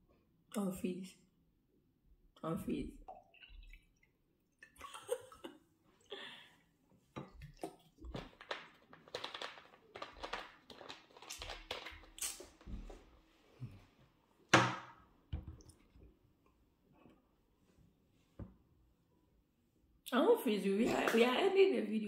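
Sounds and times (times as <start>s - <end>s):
plastic bottle crinkling: 7.4s - 13.0s.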